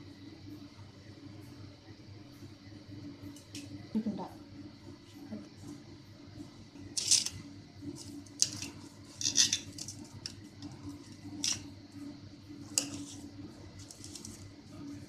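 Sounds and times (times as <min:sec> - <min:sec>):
knife scraping a steel plate: 0:08.4 - 0:10.0, 0:12.8 - 0:14.4.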